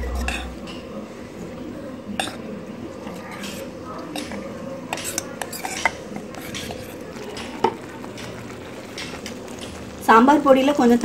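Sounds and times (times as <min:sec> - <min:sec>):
spoon scraping paste in metal pot: 0:03.3 - 0:10.0.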